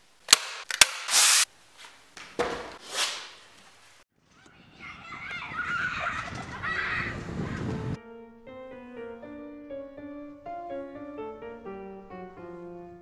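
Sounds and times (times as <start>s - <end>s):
staple gun firing: 0.3s - 1.4s
birds chirping outdoors: 4.2s - 8.0s.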